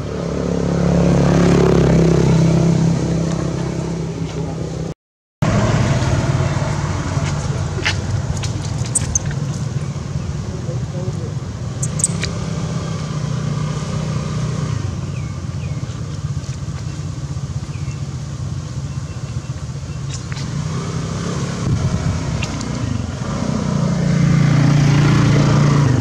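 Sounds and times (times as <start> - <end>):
motor engine humming: 0.0 - 26.0
faint short chirps and clicks: 11.8 - 12.3.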